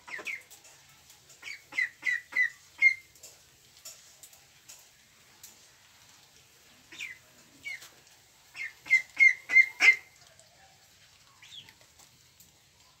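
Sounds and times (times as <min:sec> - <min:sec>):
ducklings peeping: 0:00.1 - 0:00.5, 0:01.4 - 0:03.1, 0:06.9 - 0:07.8, 0:08.5 - 0:10.2, 0:11.4 - 0:11.8.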